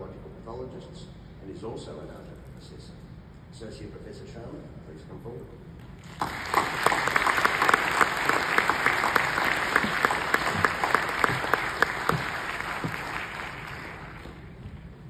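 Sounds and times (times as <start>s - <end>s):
audience applauding: 6.0s - 14.8s
loud close claps: 6.0s - 14.9s.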